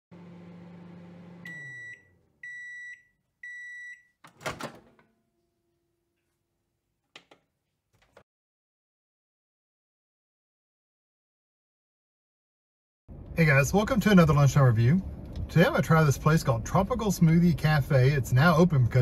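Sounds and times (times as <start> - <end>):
microwave running hum: 0.1 - 5.6
microwave beeps: 1.0 - 4.6
microwave door popping open: 4.3 - 5.1.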